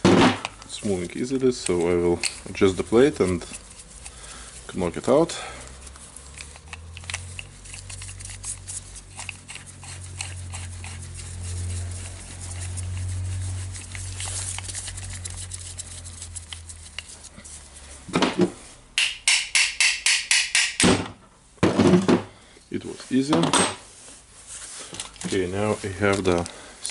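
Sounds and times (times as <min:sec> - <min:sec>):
ratchet wrench clicking: 0:05.6 - 0:11.3, 0:19.0 - 0:20.8.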